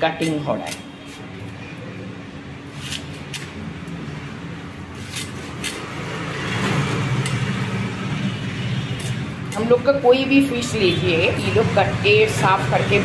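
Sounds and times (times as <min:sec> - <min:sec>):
low rumble of road traffic: 0:00.0 - 0:13.0.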